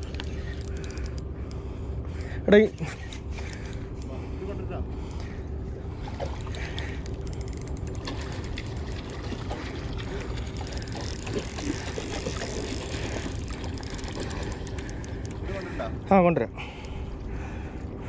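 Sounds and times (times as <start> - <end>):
fishing reel clicking: 0.0 - 1.6, 7.0 - 9.2, 10.4 - 15.4
fish splashing: 6.0 - 15.4.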